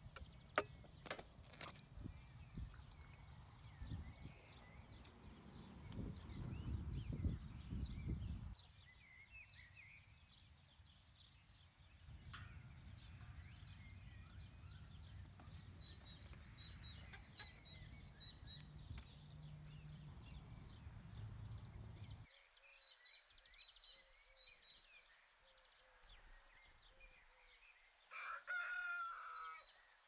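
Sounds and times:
small birds chirping: 0.0s - 10.1s, 11.9s - 22.3s.

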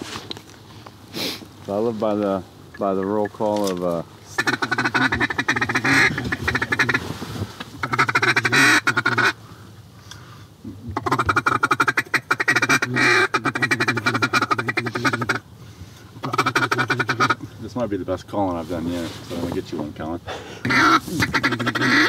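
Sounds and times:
duck call quacking: 4.3s - 7.0s, 7.8s - 9.4s, 10.9s - 15.4s, 16.2s - 17.4s, 20.6s - 22.0s.

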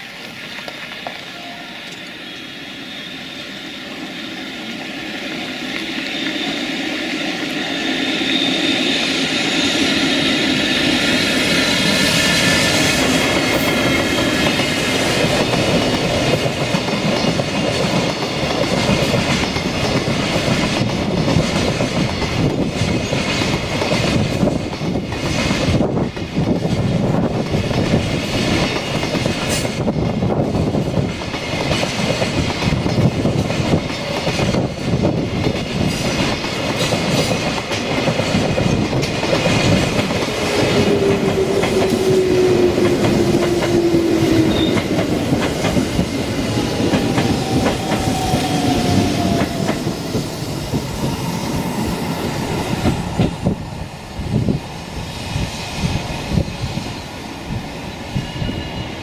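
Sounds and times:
train wheels clacking over rail joints: 9.2s - 51.4s.

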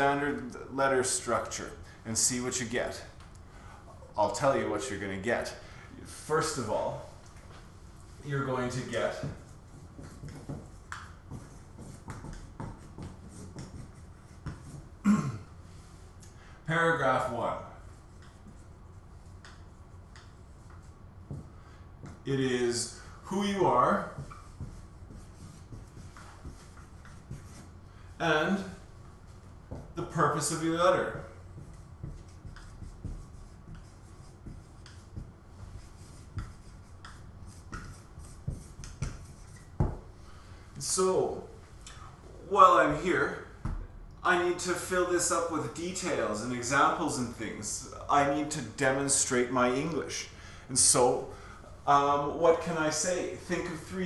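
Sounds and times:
marker writing on whiteboard: 8.2s - 15.0s, 17.0s - 40.2s.

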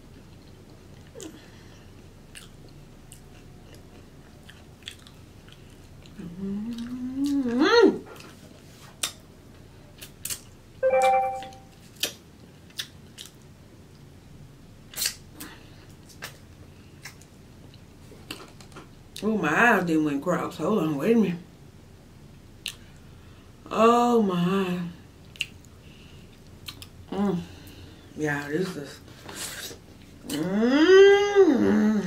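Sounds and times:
chewing and licking fingers: 2.3s - 7.5s, 12.0s - 14.1s
person humming mmm: 6.2s - 8.0s, 30.2s - 32.0s.

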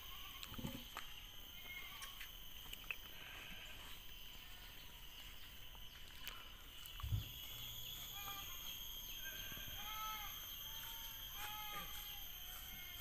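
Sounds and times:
high-pitched drone: 0.0s - 13.0s
animal calls: 7.2s - 13.0s.

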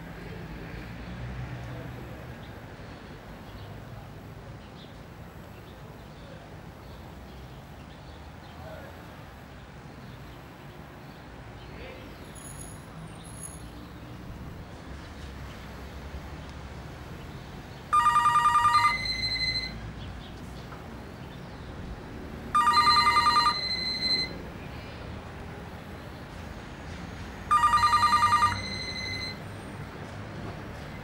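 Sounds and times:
telephone ringing: 17.9s - 19.8s, 22.5s - 24.4s, 27.5s - 29.4s.

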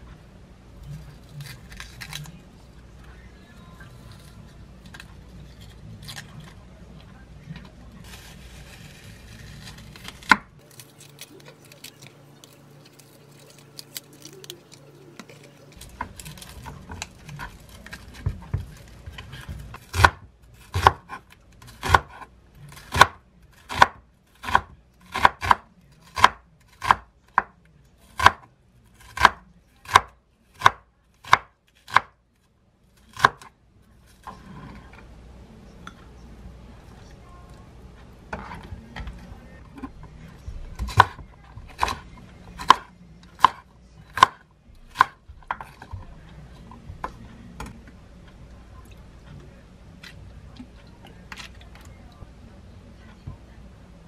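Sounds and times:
onion handling sounds: 0.8s - 20.9s
knife chopping on wooden board: 18.1s - 27.5s, 29.0s - 32.1s, 42.6s - 45.8s.

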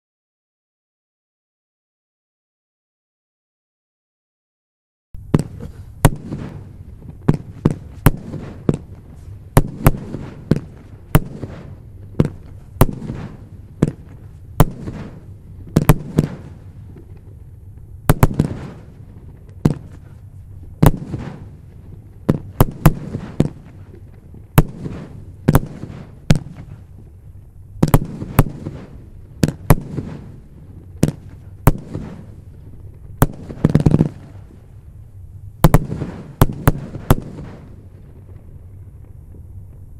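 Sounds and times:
fireworks bangs: 5.2s - 39.9s
fireworks rumble: 5.2s - 39.9s.

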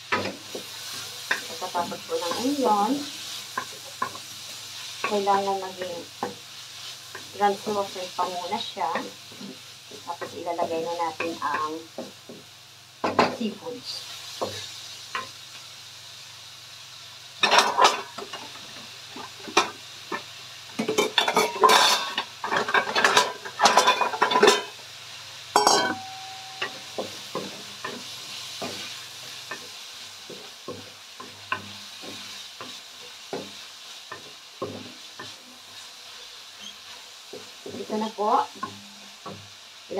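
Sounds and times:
onions sizzling in oil: 0.0s - 39.9s
wooden spatula scraping a wok: 20.8s - 24.8s, 26.0s - 39.4s.

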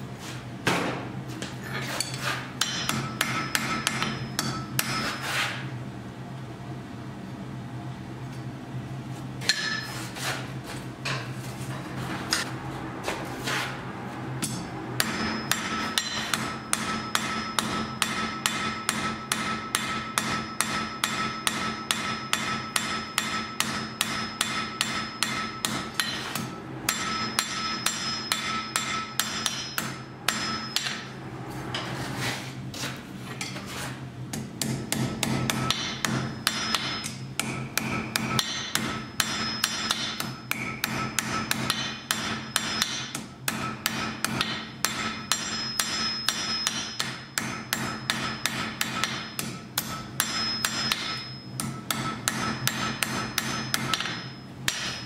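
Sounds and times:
steady low hum: 0.0s - 55.0s
hammer striking iron on anvil: 2.0s - 5.2s, 9.4s - 9.9s, 14.4s - 31.2s, 34.3s - 55.0s.

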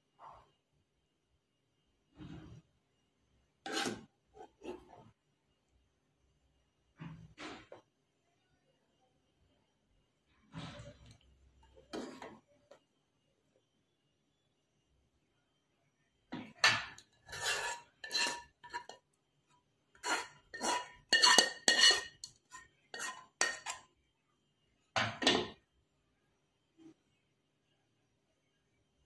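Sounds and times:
spoon scraping a pan: 2.1s - 2.7s, 3.5s - 5.3s, 10.4s - 12.8s, 16.4s - 24.0s.

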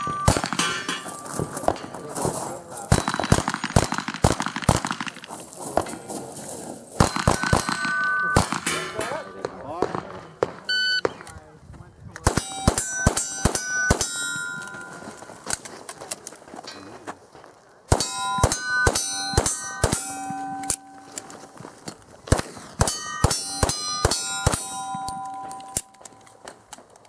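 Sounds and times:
steel plate ringing ping: 0.0s - 1.6s, 12.4s - 15.2s, 18.0s - 21.6s, 22.8s - 26.2s.

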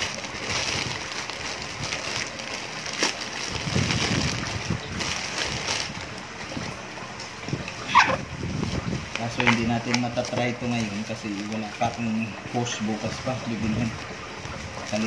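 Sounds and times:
plastic and bubble wrap crinkling: 0.0s - 15.0s.

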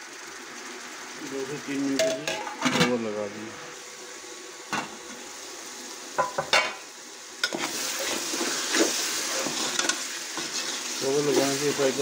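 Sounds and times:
food sizzling in a pot: 0.0s - 12.0s.

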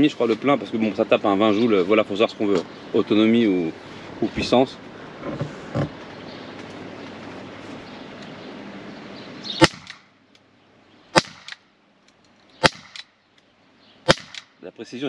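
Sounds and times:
steady background hiss: 0.0s - 15.0s
pistol shots cracking: 9.6s - 10.1s, 11.1s - 11.6s, 12.6s - 13.2s, 14.1s - 14.6s.

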